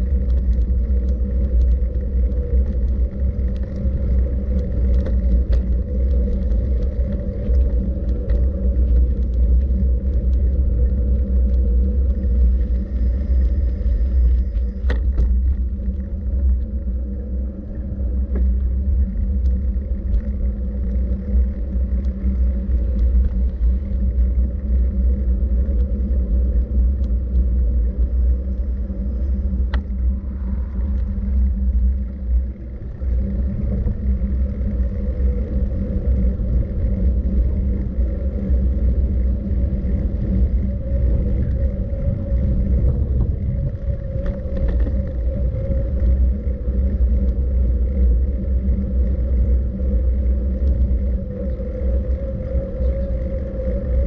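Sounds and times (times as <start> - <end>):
low rumble: 0.0 - 54.0.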